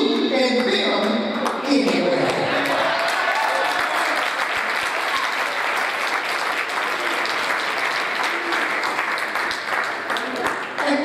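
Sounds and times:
congregation applauding: 2.2s - 11.0s.

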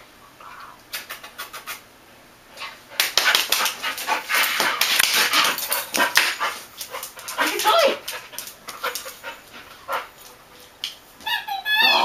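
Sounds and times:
dog panting: 2.9s - 10.4s.

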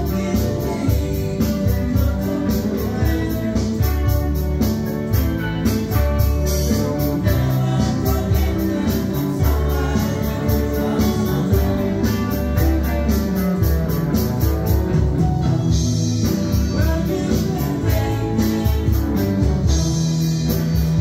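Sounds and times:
person singing: 0.0s - 13.4s, 16.5s - 19.7s
drum kit with cymbals: 0.0s - 21.0s
electric guitars: 0.0s - 21.0s
electronic keyboard: 0.0s - 21.0s.

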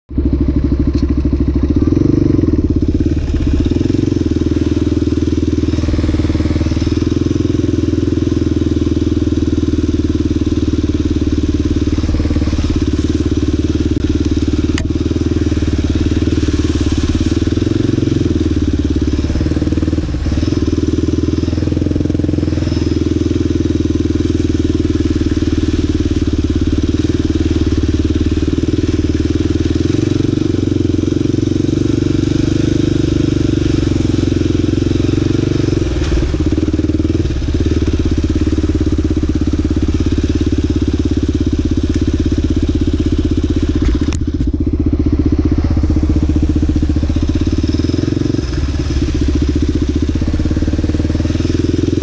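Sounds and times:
quad engine running: 0.1s - 52.0s
sharp click: 14.7s - 14.9s.

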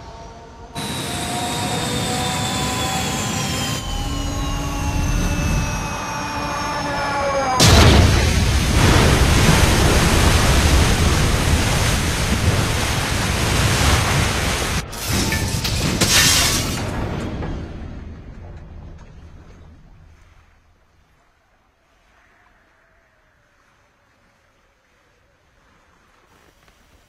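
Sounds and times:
jet engine whining falling pitch: 0.0s - 12.0s
loud rush of noise: 0.7s - 18.0s.

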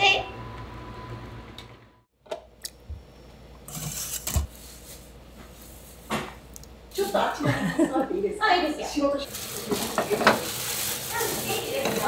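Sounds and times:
rustling: 9.2s - 12.0s.

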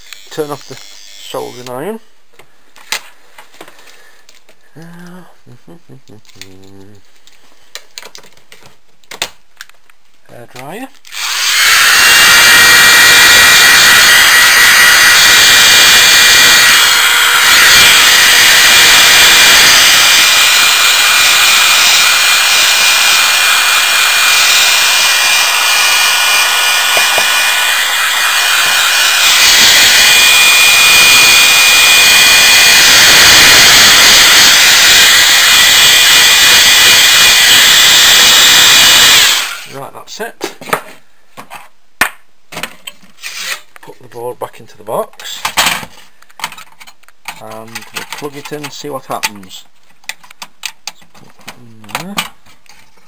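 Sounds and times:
hair dryer blowing air: 11.1s - 39.8s.

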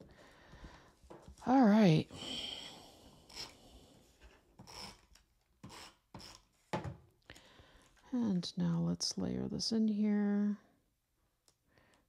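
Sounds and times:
paper rubbing and tape rasping: 4.2s - 6.6s.

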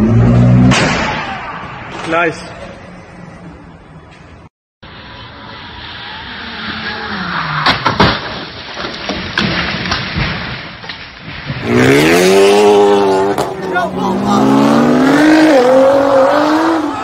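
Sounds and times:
car crash crunch: 0.4s - 2.5s, 5.6s - 14.0s
car engine: 4.8s - 8.7s, 11.6s - 17.0s
debris knocking: 7.6s - 11.6s
car engine revving: 11.6s - 17.0s.

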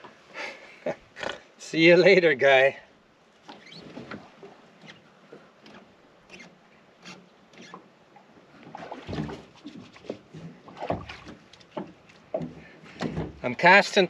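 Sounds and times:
knocks in aluminium boat: 8.7s - 13.5s.

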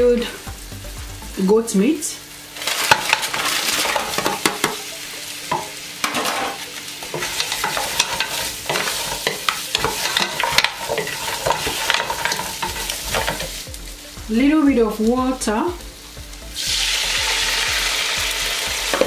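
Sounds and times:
meat sizzling in hot oil: 0.0s - 19.0s
spatula knocking and scraping pot: 5.5s - 13.5s.

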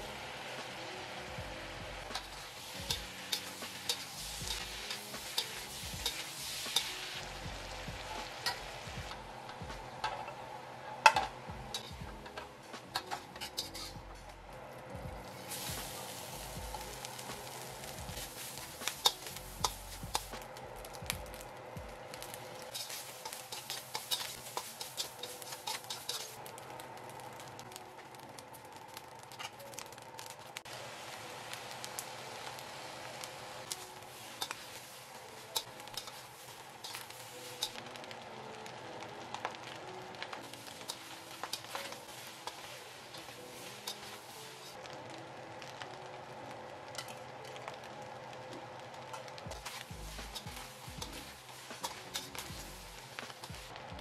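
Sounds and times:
food sizzling in wok: 0.0s - 54.0s
spatula scraping wok: 2.0s - 7.4s, 11.0s - 14.4s, 15.2s - 20.4s, 22.1s - 26.6s, 33.7s - 37.8s, 40.4s - 44.8s, 49.1s - 53.8s.

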